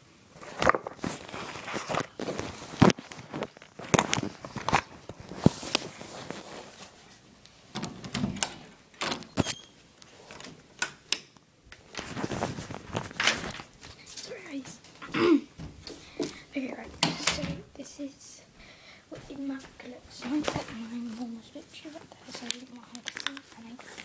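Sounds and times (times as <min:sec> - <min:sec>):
phone handling clicks and rustles: 0:00.6 - 0:06.4.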